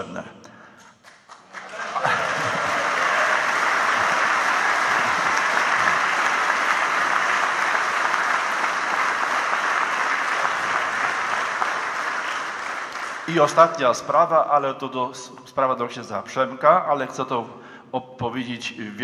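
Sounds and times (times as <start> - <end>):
audience applauding: 1.3 - 13.8.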